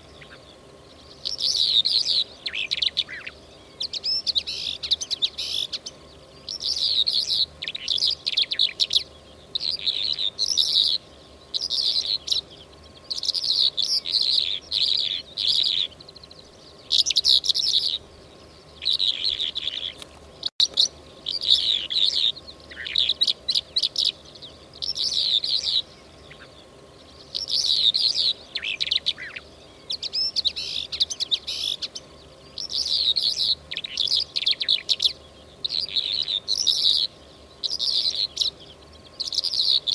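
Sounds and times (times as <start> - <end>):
faint steady hum: 0.0 - 39.9
lark chirps and trills: 0.0 - 39.9.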